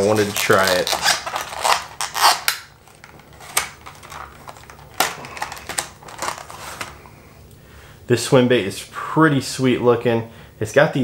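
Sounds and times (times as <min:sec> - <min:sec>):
plastic packaging crinkling: 0:00.0 - 0:07.1.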